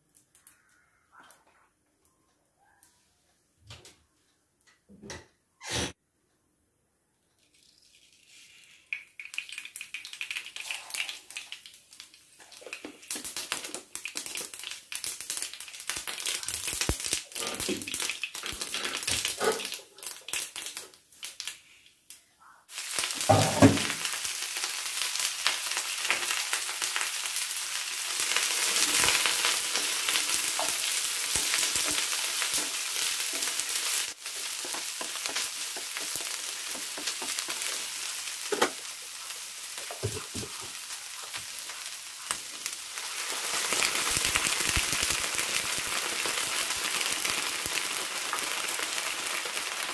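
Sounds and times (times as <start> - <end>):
hot oil sizzling in a frying pan: 8.2 - 21.8, 22.7 - 49.9
wooden spatula stirring vegetables: 28.5 - 44.4.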